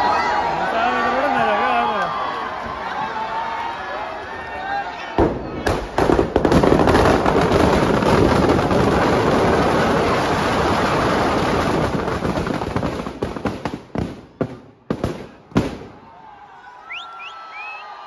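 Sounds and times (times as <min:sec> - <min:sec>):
firecrackers banging and crackling: 0:05.2 - 0:16.1.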